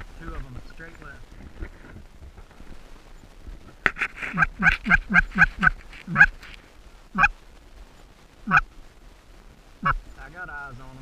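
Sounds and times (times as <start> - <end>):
geese honking: 3.9 - 6.5, 7.1 - 7.4, 8.4 - 8.7, 9.8 - 10.0.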